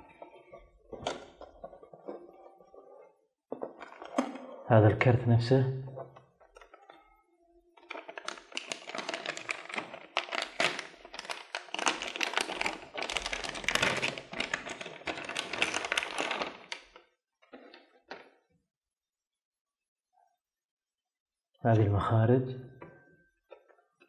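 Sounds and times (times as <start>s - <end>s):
plastic bag crinkling: 7.8s - 18.2s.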